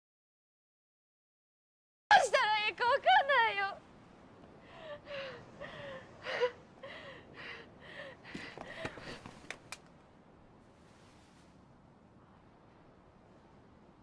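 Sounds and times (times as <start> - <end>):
woman sobbing: 2.1 - 3.7, 4.7 - 9.0.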